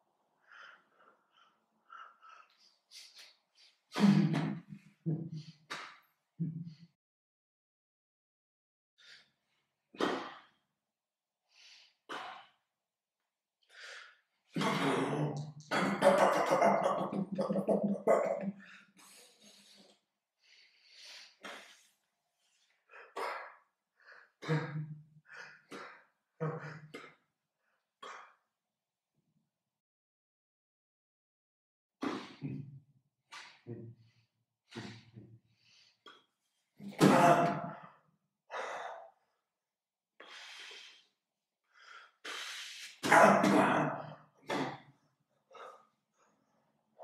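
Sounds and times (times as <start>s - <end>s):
man breathing sharp puffs: 0.4s - 4.0s, 18.6s - 24.4s, 40.2s - 43.0s.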